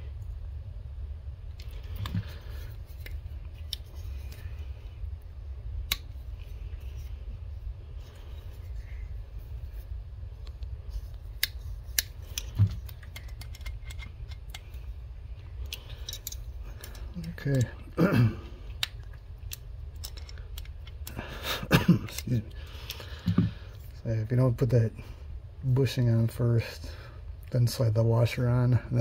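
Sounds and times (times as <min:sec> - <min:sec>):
steady low hum: 0:00.0 - 0:29.0
metallic clicks and taps: 0:11.4 - 0:14.7.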